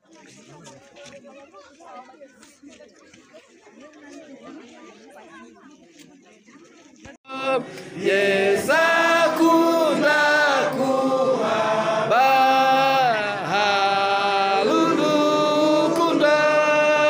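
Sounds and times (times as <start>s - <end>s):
congregation singing: 7.3s - 17.0s.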